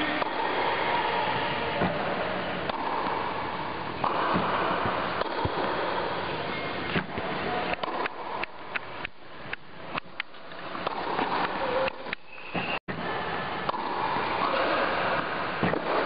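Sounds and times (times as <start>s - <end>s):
racket hitting tennis ball: 1.8s - 6.1s, 6.9s - 12.8s, 13.6s - 16.0s.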